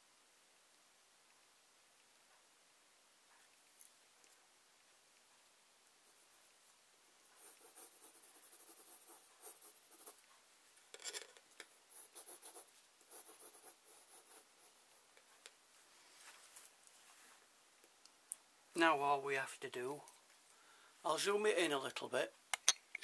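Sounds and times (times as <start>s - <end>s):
pencil scratching on paper: 7.2s - 10.3s, 11.8s - 15.4s.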